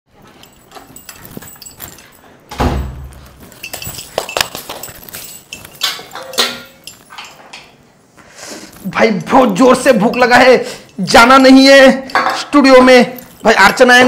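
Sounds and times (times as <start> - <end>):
heavy thump: 2.5 - 3.3
short metallic rings: 3.5 - 7.4
steel cookware clattering: 3.5 - 7.8.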